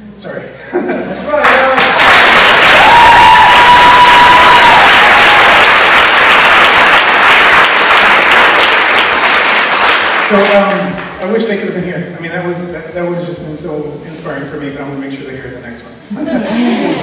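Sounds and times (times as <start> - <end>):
audience applauding: 1.3 - 11.2.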